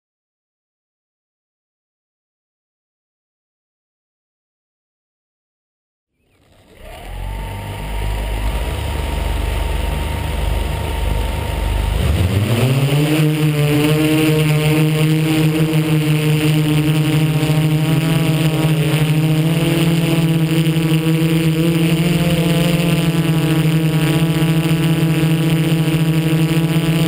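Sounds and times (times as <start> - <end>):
multirotor motors and propellers hum: 6.2 - 27.0.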